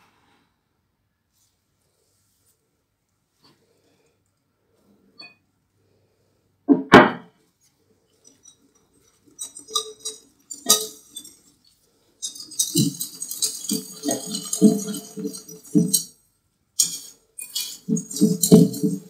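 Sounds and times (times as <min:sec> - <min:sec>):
loud knock: 0:06.7 - 0:07.3
metal utensil clinking against bowl: 0:08.2 - 0:16.1, 0:16.8 - 0:19.0.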